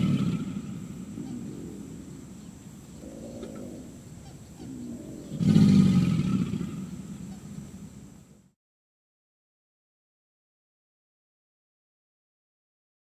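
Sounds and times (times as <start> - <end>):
alligator bellowing: 0.0 - 8.1.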